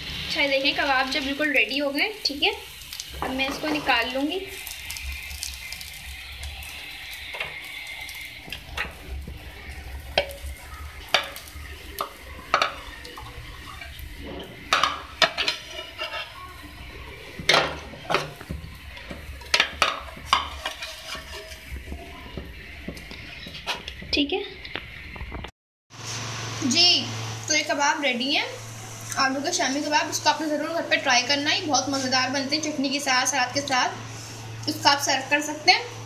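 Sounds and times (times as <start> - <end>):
oil sizzling in a pan: 0.0 - 36.0
utensils scraping a frying pan: 9.9 - 22.0.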